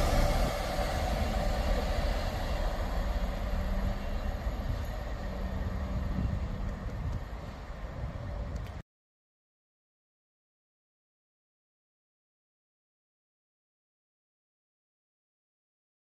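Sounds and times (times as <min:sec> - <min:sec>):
diesel locomotive engine running: 0:00.0 - 0:08.8.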